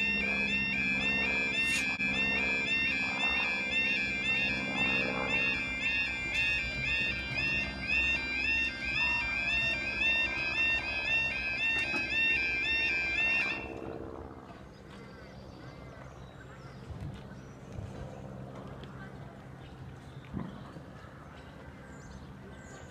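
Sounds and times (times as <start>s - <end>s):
level crossing warbling alarm: 0.0s - 13.9s
quiet street background: 0.0s - 22.9s.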